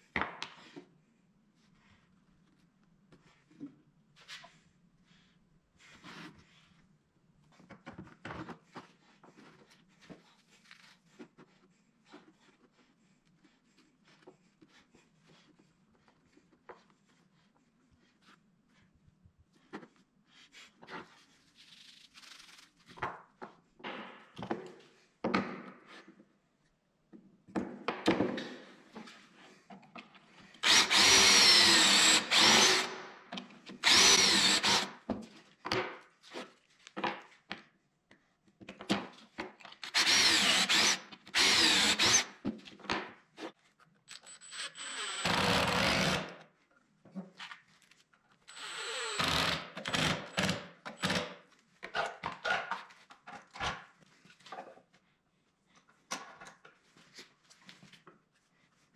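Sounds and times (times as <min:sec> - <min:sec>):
cordless drill boring wood: 0:30.6 - 0:33.1, 0:33.8 - 0:35.0, 0:39.8 - 0:42.4, 0:44.1 - 0:46.4, 0:48.5 - 0:51.4.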